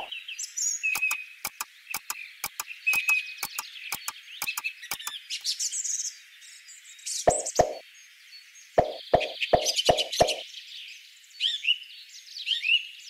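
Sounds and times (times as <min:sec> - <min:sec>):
high chirping wildlife: 0:00.0 - 0:05.8, 0:07.1 - 0:07.8, 0:08.8 - 0:10.4
clock ticking: 0:01.0 - 0:05.1, 0:07.3 - 0:07.8, 0:08.8 - 0:10.4.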